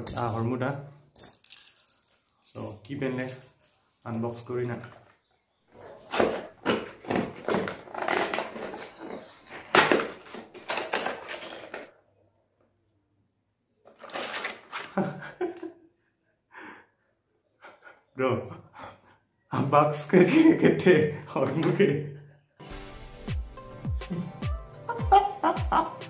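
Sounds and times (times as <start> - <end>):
cardboard flaps tearing: 6.0 - 9.0.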